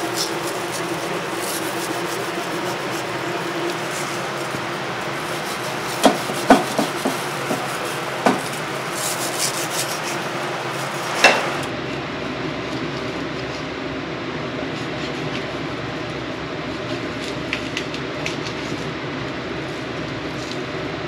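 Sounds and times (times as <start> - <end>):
knife scraping through meat: 0.0 - 11.7
steady background noise: 0.0 - 21.0
knife knocking on cutting board: 6.0 - 8.5, 11.2 - 11.6.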